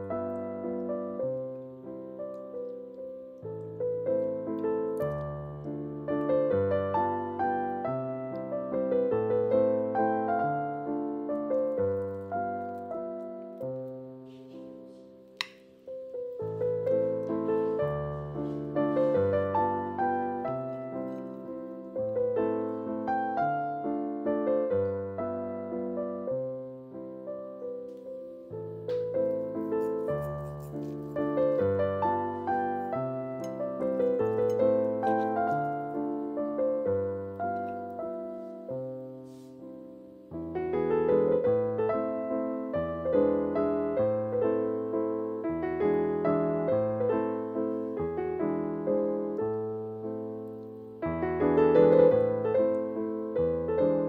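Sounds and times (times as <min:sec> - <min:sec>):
piano music: 0:00.0 - 0:54.0.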